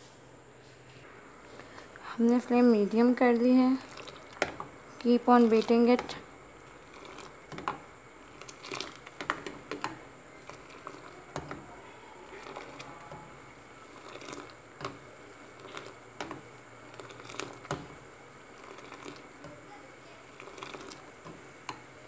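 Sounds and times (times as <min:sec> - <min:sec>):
liquid splashing: 0:03.8 - 0:19.5, 0:20.1 - 0:22.0
ladle scraping a saucepan: 0:05.4 - 0:19.6, 0:20.3 - 0:21.9.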